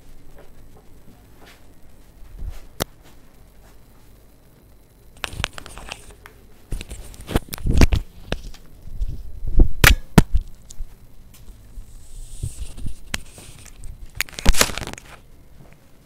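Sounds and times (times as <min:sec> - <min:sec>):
microphone handling noise: 0:05.2 - 0:15.2.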